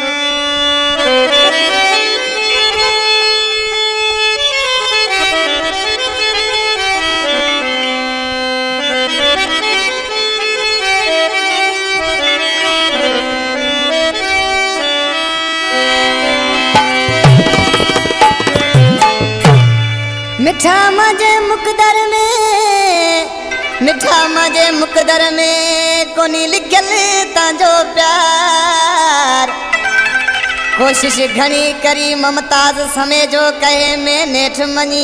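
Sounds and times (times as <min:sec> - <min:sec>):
free-reed instrument melody: 0:00.0 - 0:21.3.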